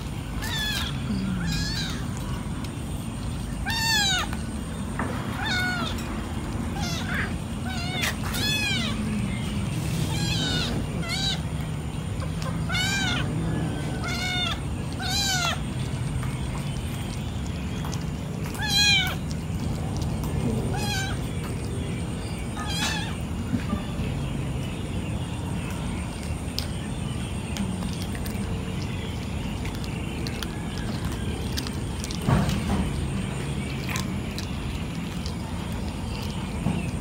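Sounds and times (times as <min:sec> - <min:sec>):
cats meowing: 0:00.0 - 0:24.0
low background rumble: 0:00.0 - 0:37.0.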